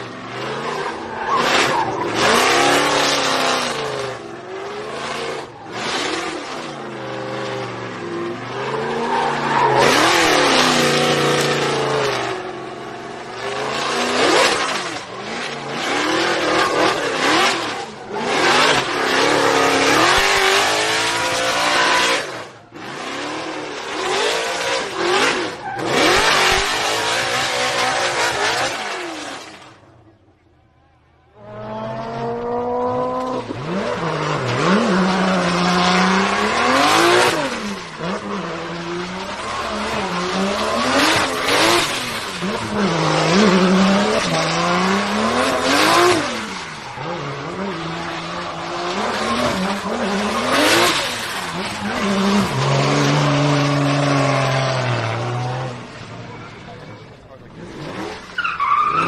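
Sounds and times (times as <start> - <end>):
car engine revving hard: 0.0 - 29.8, 31.4 - 59.0
tyres squealing: 57.9 - 59.0.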